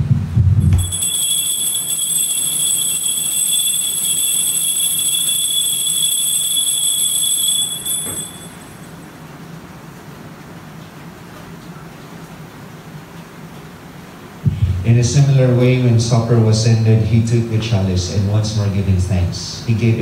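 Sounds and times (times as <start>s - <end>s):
altar bells ringing: 0.6s - 9.1s.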